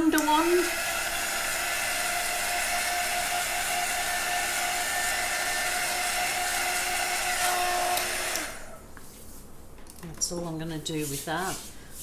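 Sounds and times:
heat gun motor whine: 0.0s - 8.8s.

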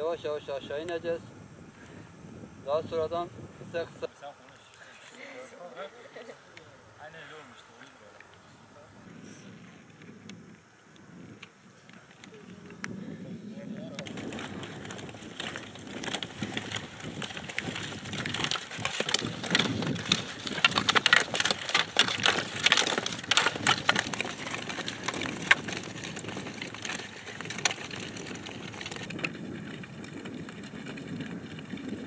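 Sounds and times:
rustling on grass: 3.2s - 29.2s
skis and poles clattering: 13.8s - 32.0s.

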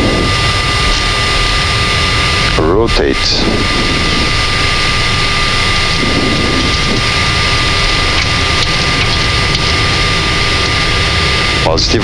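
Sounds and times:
jet engine and airflow rushing: 0.0s - 12.0s
low rumble: 0.0s - 12.0s.

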